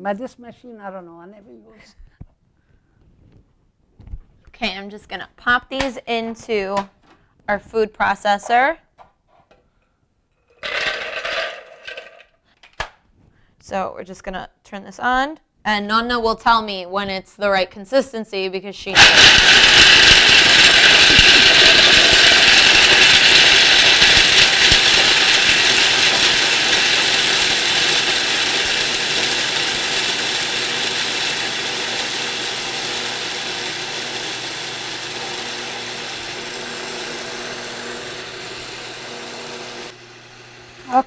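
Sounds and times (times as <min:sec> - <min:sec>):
food processor whirring: 0:10.6 - 0:12.2, 0:19.0 - 0:41.0.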